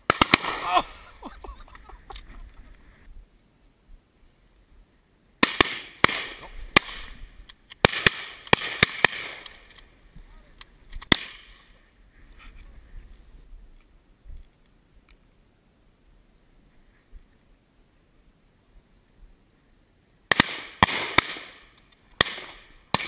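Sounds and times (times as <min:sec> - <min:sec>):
shotgun shots echoing: 0:00.1 - 0:01.0, 0:05.4 - 0:07.2, 0:07.8 - 0:09.6, 0:20.3 - 0:23.0.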